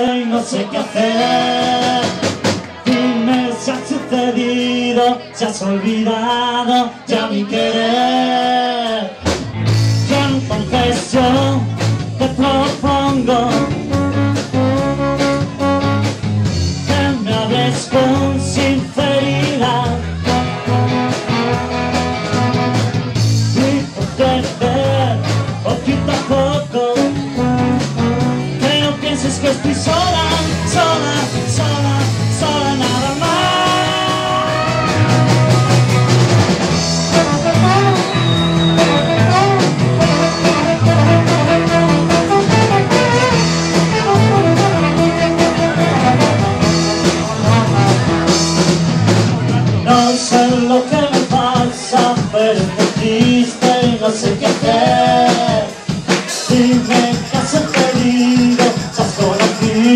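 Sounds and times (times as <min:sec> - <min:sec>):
live rock and roll band: 0:00.0 - 0:59.9
trombone melody: 0:12.6 - 0:17.2, 0:19.7 - 0:23.7, 0:27.0 - 0:49.4.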